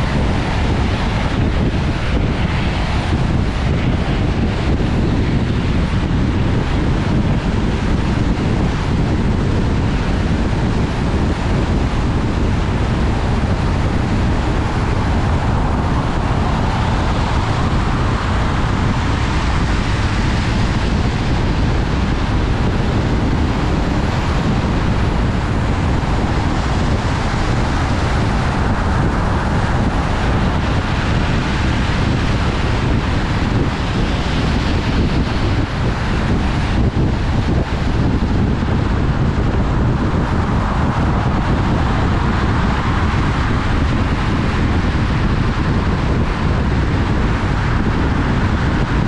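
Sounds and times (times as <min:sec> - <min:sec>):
wind noise: 0:00.0 - 0:49.0.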